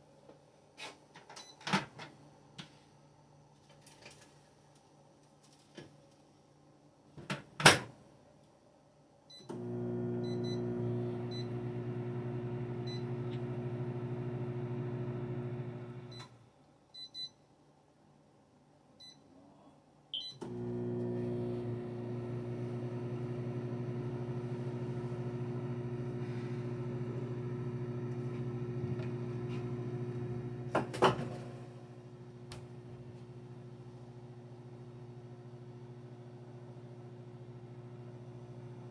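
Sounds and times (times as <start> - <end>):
microwave oven humming: 9.4 - 16.4, 20.3 - 38.9
keypad beep: 20.2 - 20.4.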